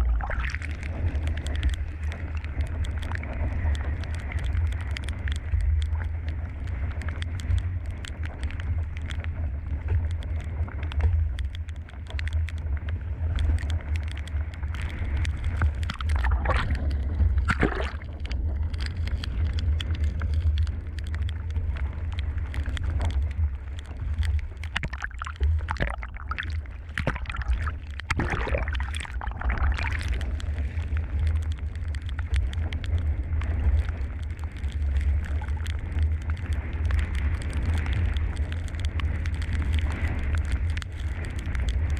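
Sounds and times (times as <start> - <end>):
water sloshing and splashing: 0.0 - 1.8, 15.5 - 19.2, 23.8 - 31.5
wind buffeting microphone: 0.0 - 41.9.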